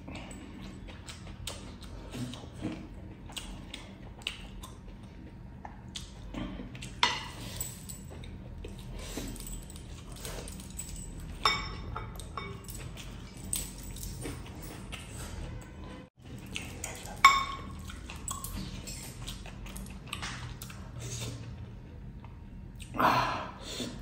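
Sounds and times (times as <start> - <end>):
chewing: 0.0 - 11.5, 12.1 - 23.0
metal rings clinking on glass: 9.3 - 14.8.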